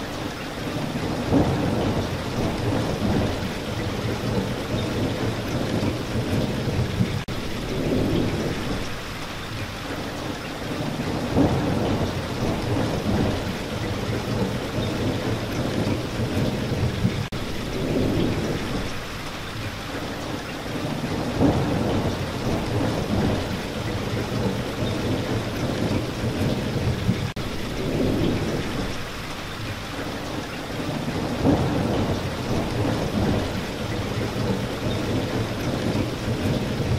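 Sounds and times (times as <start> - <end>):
steady rain: 0.0 - 36.9
thunder rumbling: 0.7 - 9.0, 10.8 - 19.1, 20.8 - 29.2, 30.7 - 36.9.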